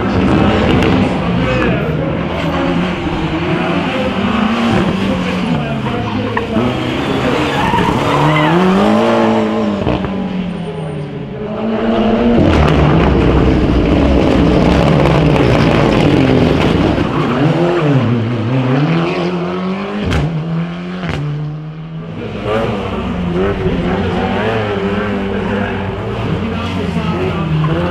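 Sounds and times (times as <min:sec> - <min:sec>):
rally car engine revving: 0:00.0 - 0:27.9
tyre squeal: 0:05.6 - 0:09.1.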